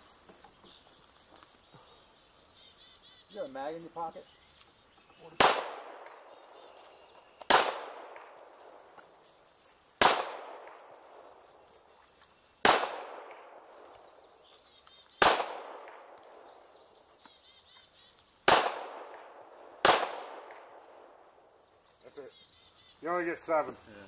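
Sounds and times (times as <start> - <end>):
handgun shots with echo: 5.4 - 6.2, 10.0 - 10.8, 18.5 - 20.7.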